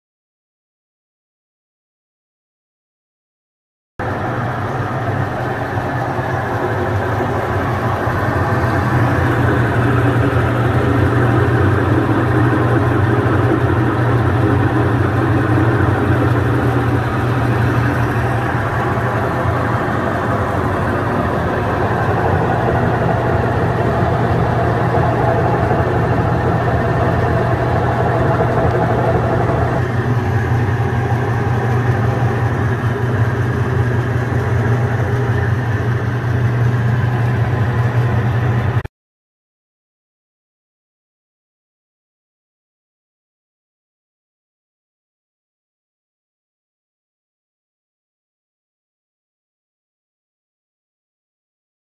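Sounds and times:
honey extractor motor humming: 4.0 - 38.8.

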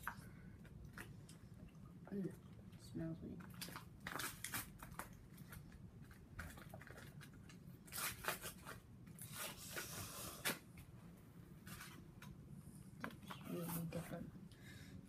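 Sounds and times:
foil candy wrapper crackling: 3.5 - 10.6.

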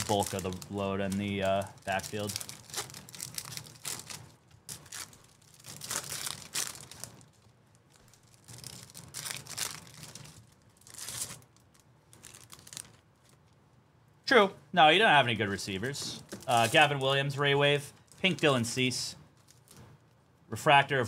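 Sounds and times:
card pack wrappers tearing: 0.0 - 13.4, 16.2 - 17.2.

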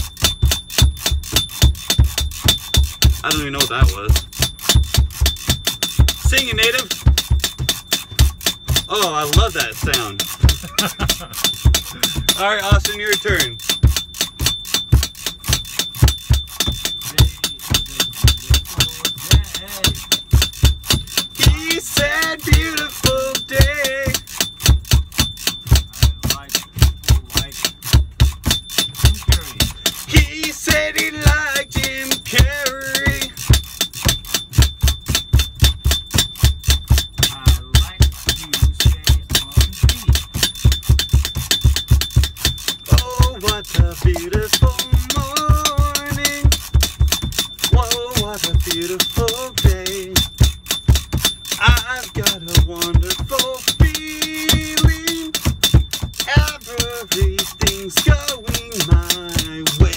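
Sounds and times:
hip-hop beat: 0.0 - 59.9.

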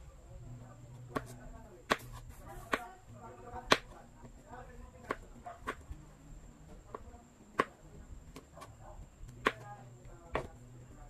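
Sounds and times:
knife chopping on wooden board: 1.1 - 2.9, 3.6 - 4.4, 5.0 - 6.0, 6.9 - 8.7, 9.3 - 10.6.

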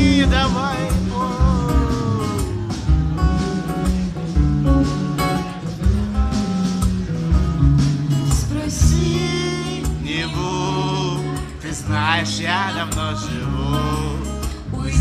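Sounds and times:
person singing: 0.0 - 3.8, 8.4 - 15.0
drum beats: 0.0 - 15.0
electric and acoustic guitars: 0.0 - 15.0.

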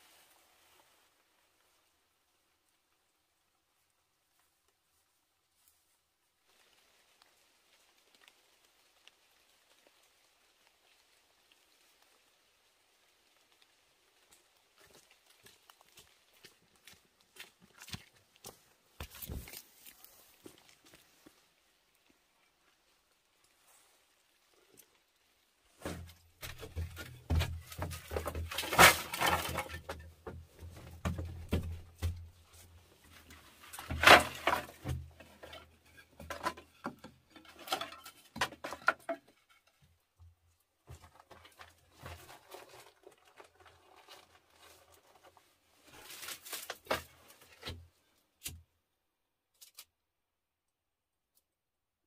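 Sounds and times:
rustles: 0.0 - 48.7
bamboo strips clattering: 25.8 - 39.9, 40.9 - 47.8.

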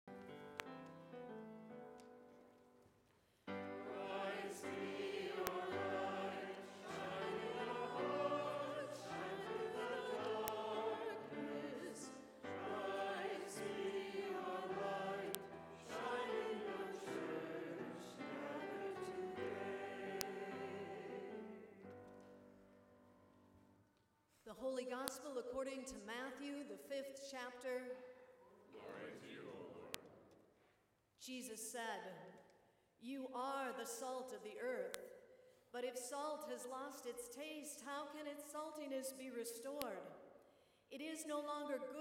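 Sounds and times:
congregation singing: 3.5 - 22.0, 28.6 - 30.2.

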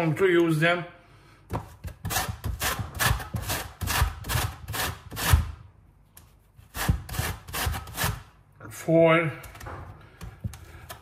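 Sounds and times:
zest grating on kitchen grater: 2.1 - 5.5, 6.7 - 8.3.

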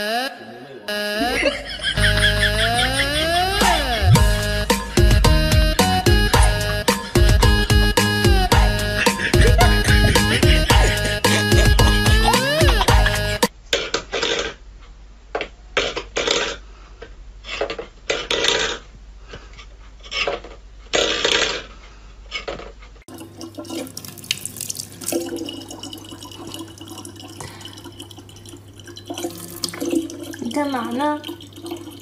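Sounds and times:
tap water filling plastic bottle: 23.1 - 32.0.

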